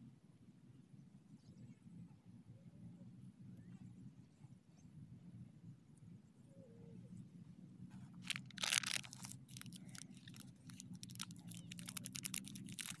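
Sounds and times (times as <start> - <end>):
candy wrapper crinkling and tearing: 8.2 - 13.0.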